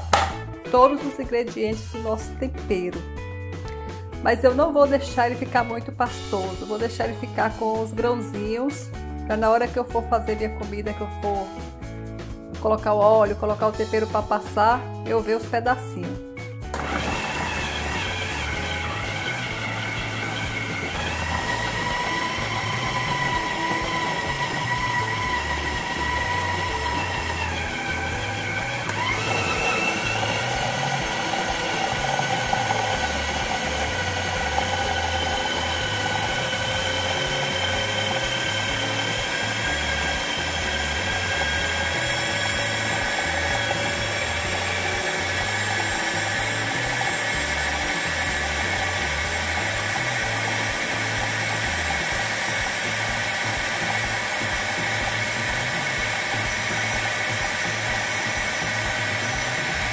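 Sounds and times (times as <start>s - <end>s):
food processor motor whining: 16.7s - 59.9s.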